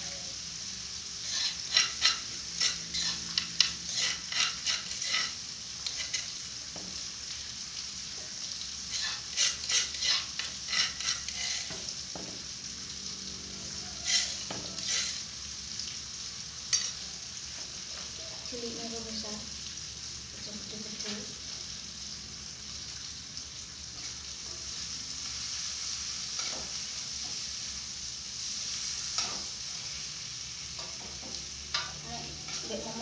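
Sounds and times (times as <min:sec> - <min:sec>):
food sizzling in oil: 0:00.0 - 0:33.0
spatula scraping pan: 0:01.2 - 0:06.5, 0:08.8 - 0:12.0, 0:13.9 - 0:15.3, 0:16.7 - 0:18.2, 0:24.0 - 0:27.6, 0:28.6 - 0:30.1, 0:30.8 - 0:33.0.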